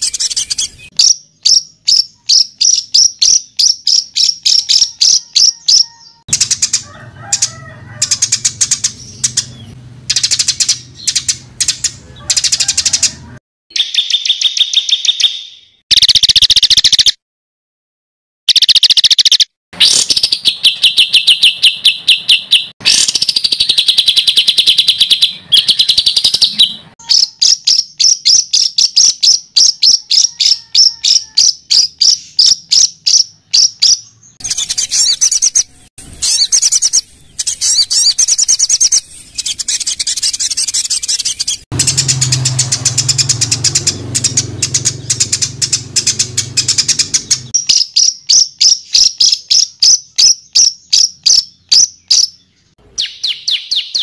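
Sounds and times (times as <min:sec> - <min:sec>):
songbird rapid high notes: 0:34.4 - 0:48.0.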